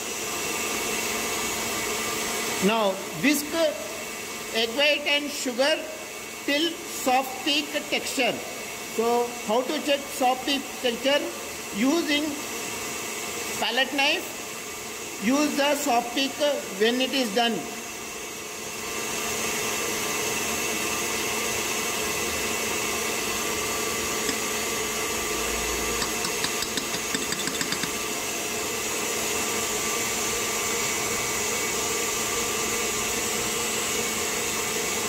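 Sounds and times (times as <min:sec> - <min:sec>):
stand mixer motor hum: 0:00.0 - 0:35.0.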